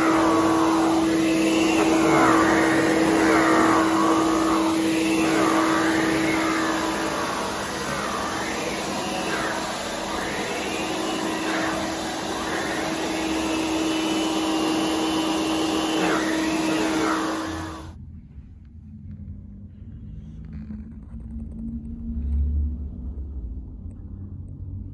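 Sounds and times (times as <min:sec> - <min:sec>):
vacuum cleaner running: 0:00.0 - 0:18.0.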